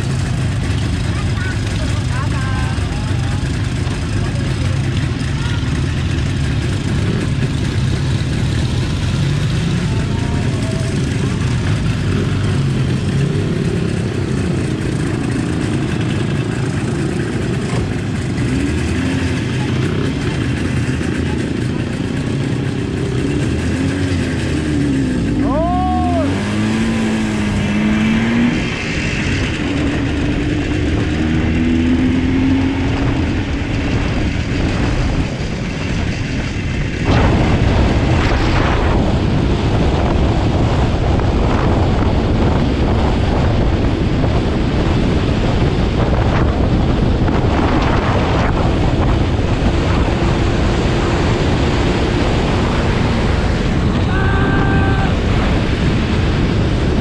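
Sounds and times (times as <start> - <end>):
motorcycle engine running: 0.0 - 57.0
wind noise on microphone: 26.3 - 57.0.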